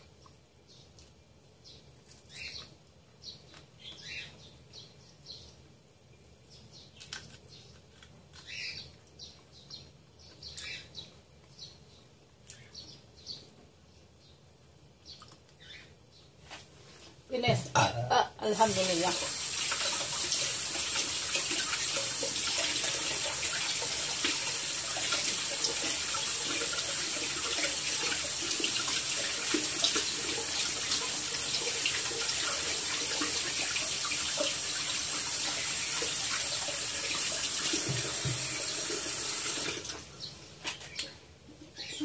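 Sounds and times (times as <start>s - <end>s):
tap water running into sink: 18.7s - 40.0s.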